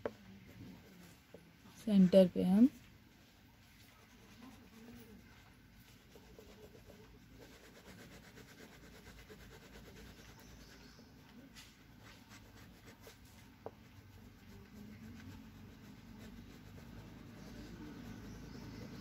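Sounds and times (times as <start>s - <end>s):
crayon scratching on paper: 4.0s - 5.2s, 5.8s - 11.0s, 12.0s - 19.0s.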